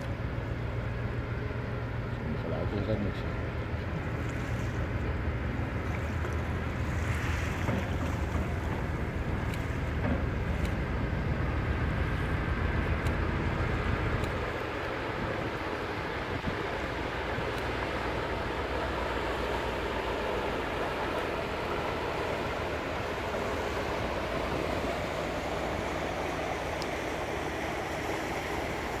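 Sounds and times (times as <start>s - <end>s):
churning water rushing: 0.0s - 29.0s
ship engine rumbling: 0.0s - 29.0s.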